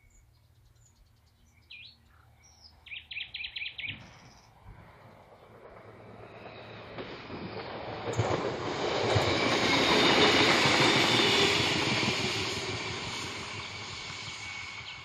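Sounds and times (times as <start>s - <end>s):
wheels on rails: 4.0s - 15.0s
diesel railbus engine: 4.7s - 15.0s.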